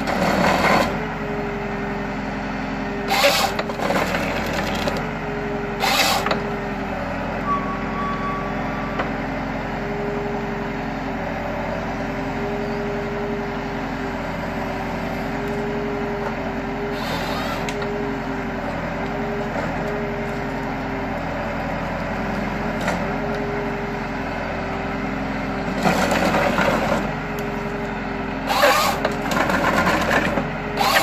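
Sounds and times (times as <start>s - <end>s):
tractor diesel engine running: 0.0s - 31.0s
rough wood-cutting noise: 3.0s - 6.8s, 16.8s - 18.0s, 28.3s - 31.0s.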